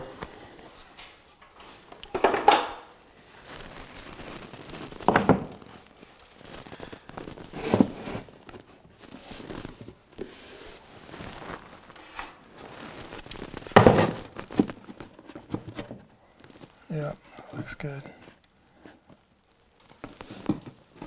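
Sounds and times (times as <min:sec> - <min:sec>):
moulding rubbing and rustling: 0:03.2 - 0:19.2.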